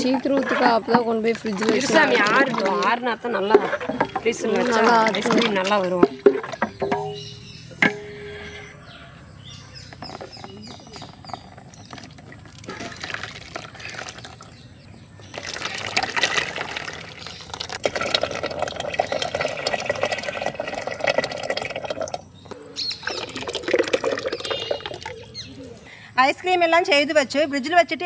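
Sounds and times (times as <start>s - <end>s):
liquid pouring and splashing: 0.0s - 7.2s, 10.4s - 14.6s, 15.2s - 25.2s.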